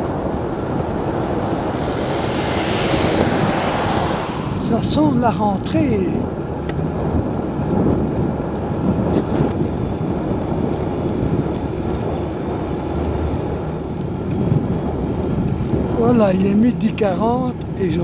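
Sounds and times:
road noise: 0.0 - 18.0
wind rushing over microphone: 0.0 - 18.0.

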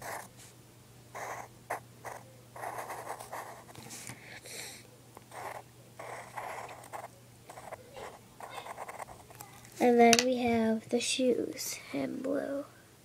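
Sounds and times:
pencil scratching on paper: 0.0 - 0.3, 1.2 - 3.8, 5.3 - 9.3.

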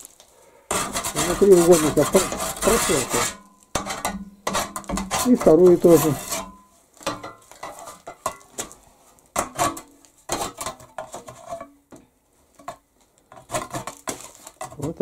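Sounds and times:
hand tool scraping metal: 0.7 - 8.8, 9.4 - 11.8, 12.6 - 15.0.

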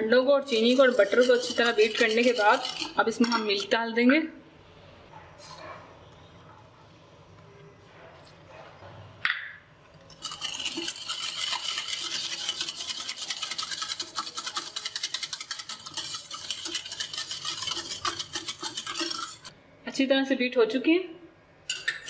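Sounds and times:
whisk beating batter in bowl: 0.4 - 3.7, 10.1 - 19.5.

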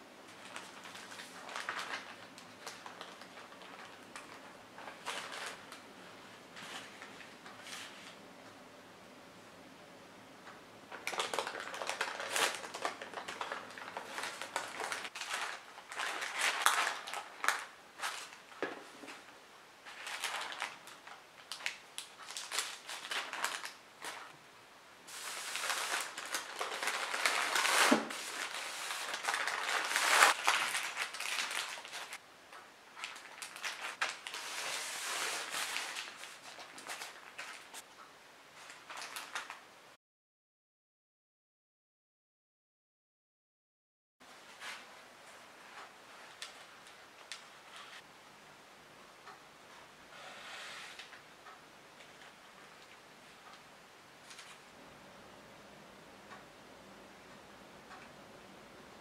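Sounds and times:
parchment paper crinkling: 0.3 - 5.9, 10.9 - 19.2, 19.8 - 24.3, 25.1 - 32.2, 33.0 - 37.8, 38.6 - 39.6.

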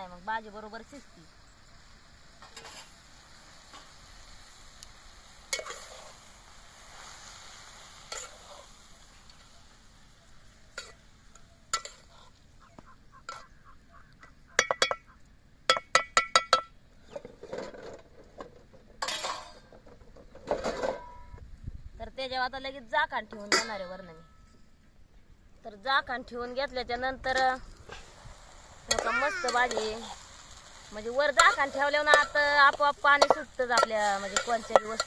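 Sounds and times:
metal spoon scraping pot: 31.4 - 35.0
spoon clinking against pot: 33.2 - 35.0.

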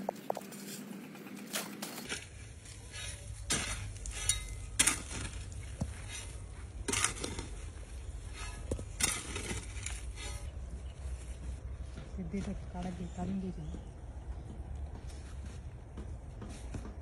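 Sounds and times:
hoe scraping gravelly soil: 0.0 - 11.0.

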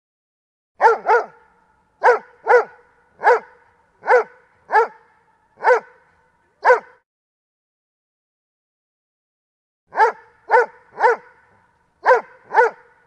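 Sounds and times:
dog barking sharply: 0.8 - 6.0, 6.6 - 7.0, 9.9 - 13.0
ringing echo of barks: 0.8 - 7.0, 9.9 - 13.0.

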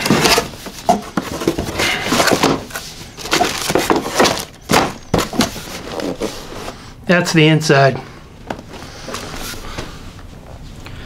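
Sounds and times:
cardboard scraping and rustling: 0.0 - 6.8.

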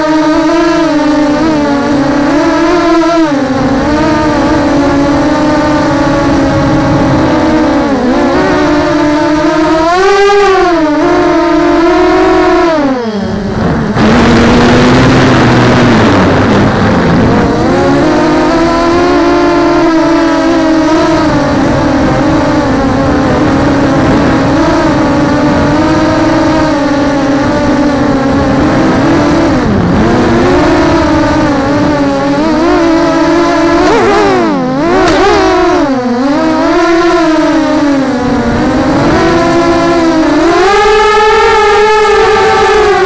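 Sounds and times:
drone motors and propellers whining: 0.0 - 43.0
airflow noise: 12.8 - 36.6.

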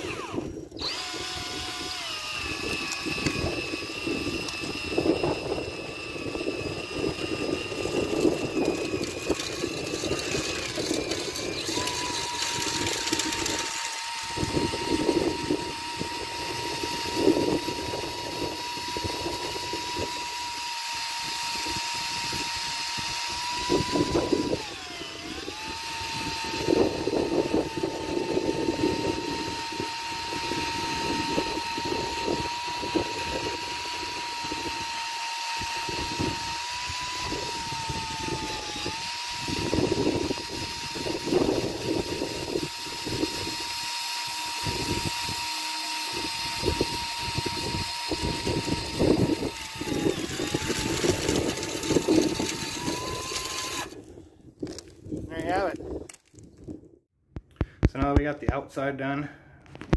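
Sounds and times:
power drill whine: 0.0 - 54.8.

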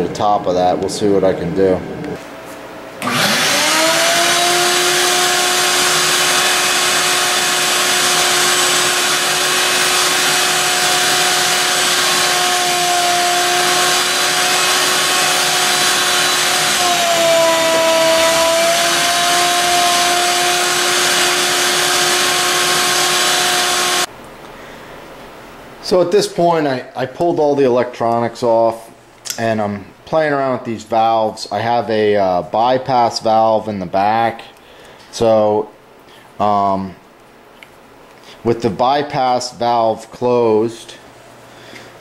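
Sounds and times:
shop vacuum motor whine: 3.0 - 24.1.

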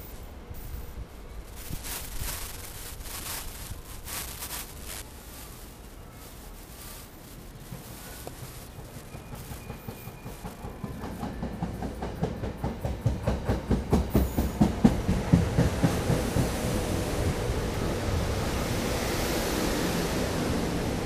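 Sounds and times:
hiss: 0.0 - 21.0
train rumble: 0.0 - 21.0
train wheels clicking on rail joints: 5.9 - 17.4.

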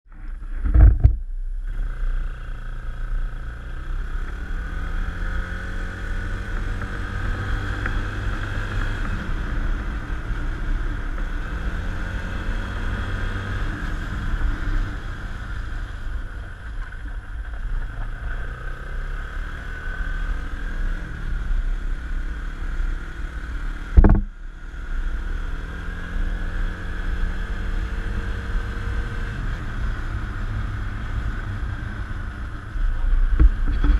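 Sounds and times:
wind rumble on microphone: 0.1 - 2.3, 23.9 - 24.4, 28.2 - 33.9
atv engine running: 0.2 - 33.9
sharp loud thumps: 0.6 - 1.2, 24.0 - 24.3.

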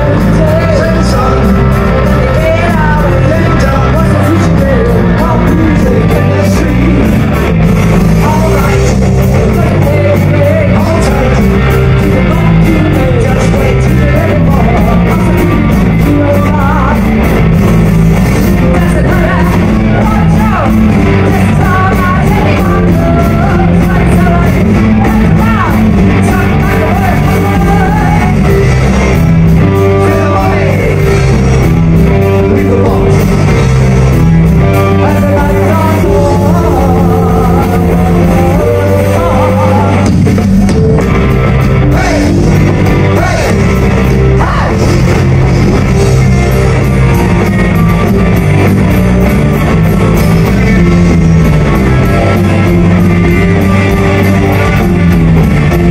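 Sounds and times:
drums: 0.0 - 55.9
electric guitars: 0.0 - 55.9
woman singing: 21.2 - 28.4.

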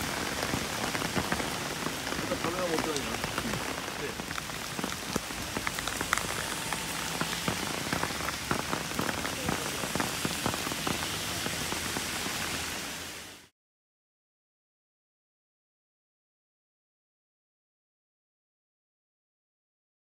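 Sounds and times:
raindrops ticking close by: 0.0 - 13.5
steady rain hiss: 0.0 - 13.5.

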